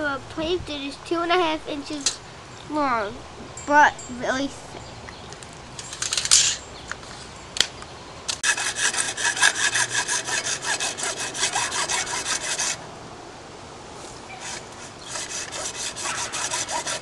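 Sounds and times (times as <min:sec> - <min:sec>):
hacksaw cutting plastic pipe: 0:08.4 - 0:12.8, 0:14.4 - 0:17.0.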